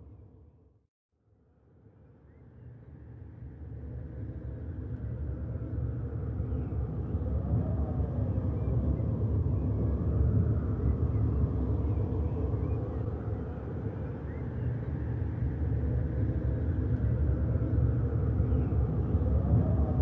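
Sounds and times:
low rumble: 15.0 - 20.0.

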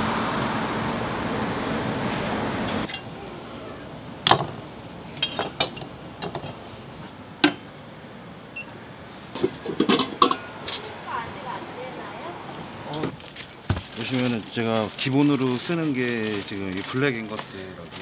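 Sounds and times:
metal utensils clacking and clinking: 5.2 - 6.5, 9.4 - 11.0.

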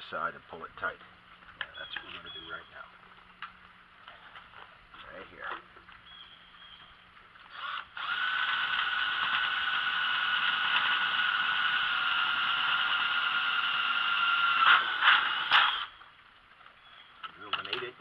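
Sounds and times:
electric drill whining: 7.5 - 16.0.

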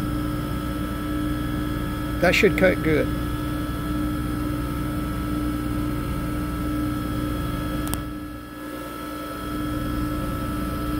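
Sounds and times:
bench grinder running: 0.0 - 10.9.

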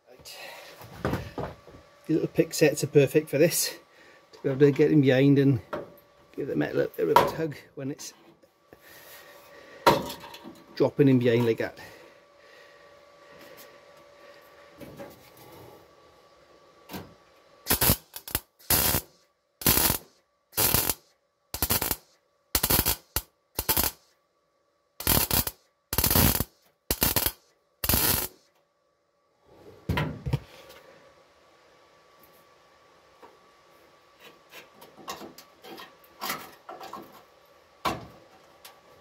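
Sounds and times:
welder arc bursts: 17.6 - 24.1, 25.0 - 28.4.

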